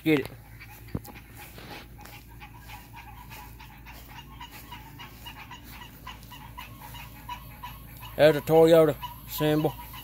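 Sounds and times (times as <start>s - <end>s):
faint rapid animal calls: 0.0s - 10.0s.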